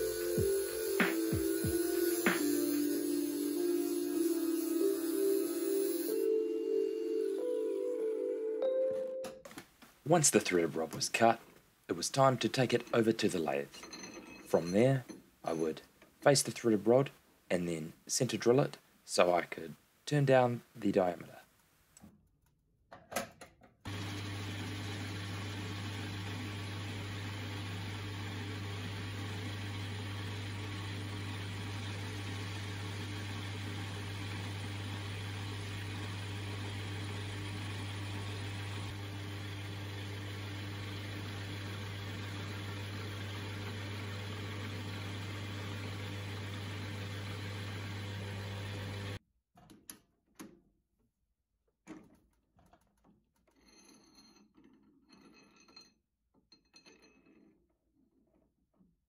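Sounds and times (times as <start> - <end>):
metal lathe whirring: 0.0 - 6.2, 23.9 - 49.2.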